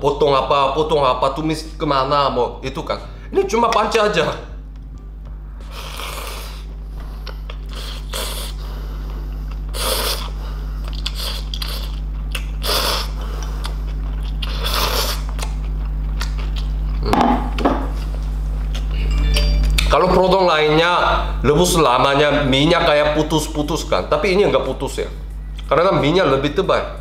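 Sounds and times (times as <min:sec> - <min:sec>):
steady low hum: 0:00.0 - 0:27.0
person slurping noodles: 0:05.6 - 0:06.7, 0:07.5 - 0:08.6, 0:09.7 - 0:12.0, 0:12.6 - 0:13.8, 0:14.4 - 0:15.3.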